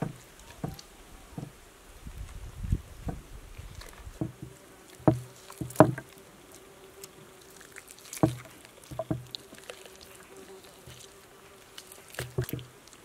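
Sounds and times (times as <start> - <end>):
buzzing insect: 3.0 - 13.0.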